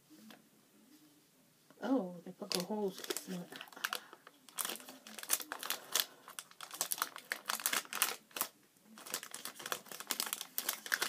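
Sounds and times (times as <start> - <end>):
packaging crinkling and clicking: 2.5 - 11.0.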